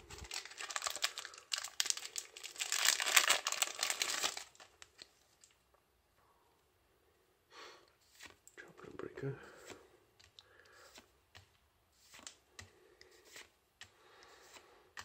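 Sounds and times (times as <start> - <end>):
foil wrapper crinkling and tearing: 0.1 - 5.6.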